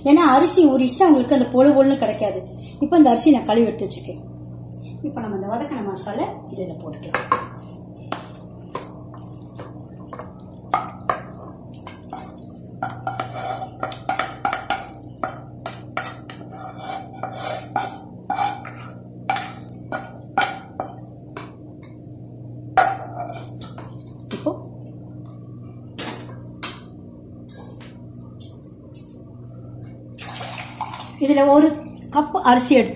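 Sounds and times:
faint steady hum: 0:00.0 - 0:32.9
spoon scraping a metal pan: 0:12.8 - 0:21.0.

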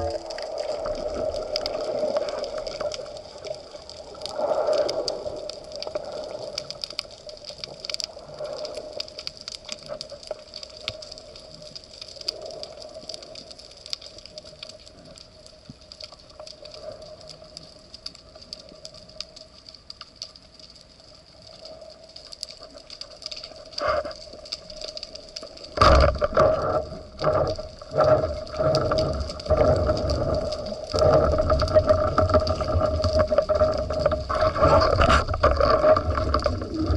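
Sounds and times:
underwater watery hiss: 0:00.0 - 0:07.0
fine underwater clicks: 0:00.0 - 0:36.9.

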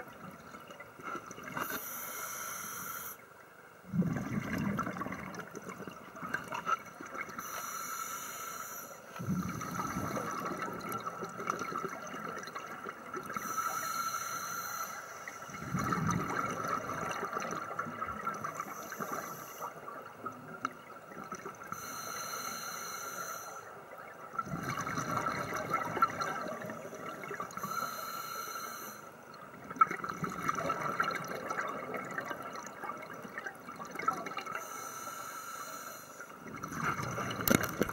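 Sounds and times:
faint steady whine: 0:00.0 - 0:37.9
regulator inhalation hiss: 0:01.6 - 0:03.2, 0:07.4 - 0:09.6, 0:13.4 - 0:15.4, 0:18.7 - 0:19.7, 0:21.8 - 0:23.7, 0:27.6 - 0:29.1, 0:34.6 - 0:36.3
exhaled bubbles rushing: 0:03.8 - 0:07.4, 0:09.2 - 0:13.4, 0:15.5 - 0:19.1, 0:24.0 - 0:27.6, 0:29.5 - 0:34.6, 0:36.4 - 0:37.9.

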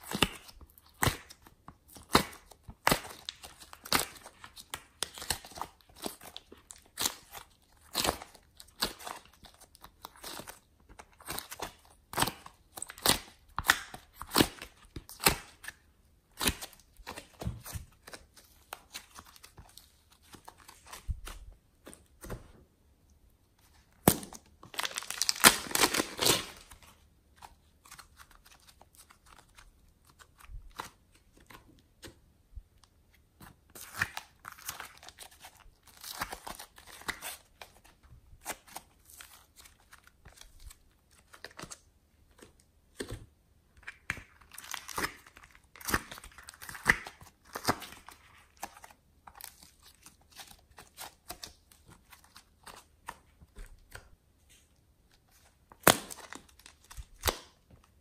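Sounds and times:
clay tearing: 0:23.6 - 0:32.2, 0:33.2 - 0:58.0
plastic bag crinkling: 0:24.6 - 0:26.7.

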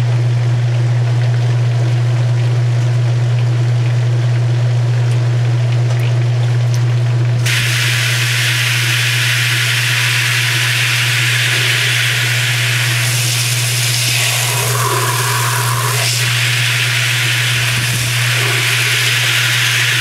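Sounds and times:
washer motor hum: 0:00.0 - 0:20.0
hose nozzle spraying water: 0:07.4 - 0:20.0.

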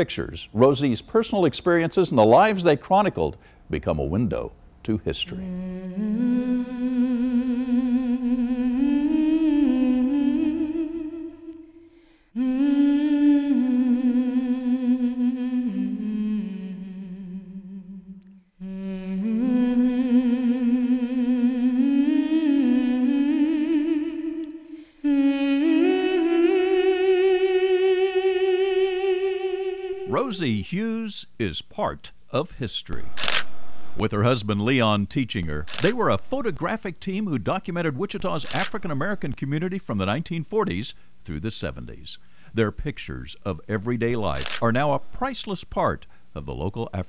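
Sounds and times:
person humming a slow melody: 0:05.4 - 0:30.2.

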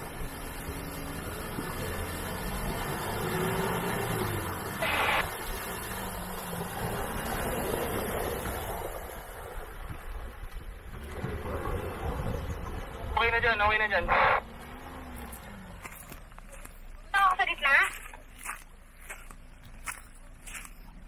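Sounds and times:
tyres splashing through water: 0:00.0 - 0:13.2
car engine running at low speed: 0:00.0 - 0:21.0.

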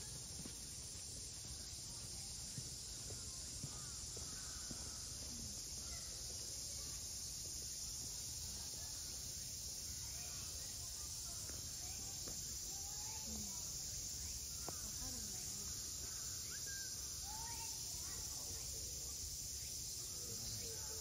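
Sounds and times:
high-pitched insect chorus: 0:00.0 - 0:21.0.

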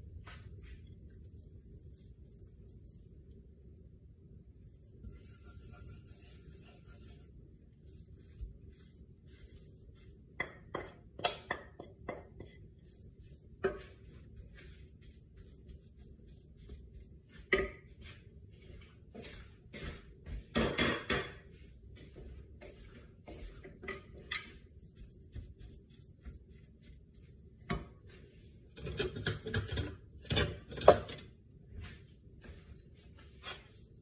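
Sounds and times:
wooden spoon stirring in frying pan: 0:04.7 - 0:34.0.

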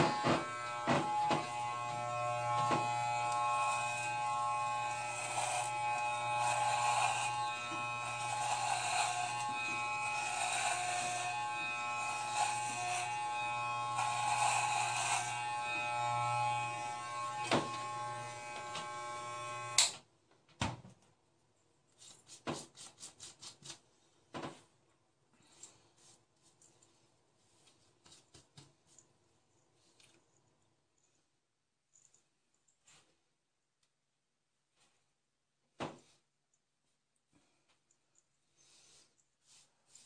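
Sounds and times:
clippers hissing through hair: 0:00.0 - 0:19.9
electric hair clippers buzzing: 0:00.0 - 0:20.0.

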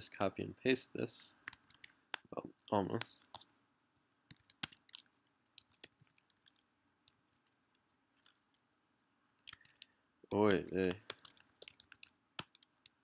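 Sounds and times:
keyboard and mouse clicking: 0:01.2 - 0:03.5, 0:04.3 - 0:07.6, 0:09.4 - 0:13.0.

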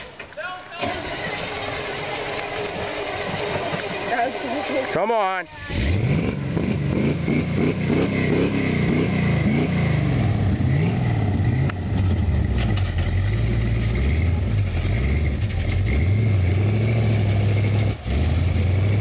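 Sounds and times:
truck engine revving: 0:00.8 - 0:19.0.

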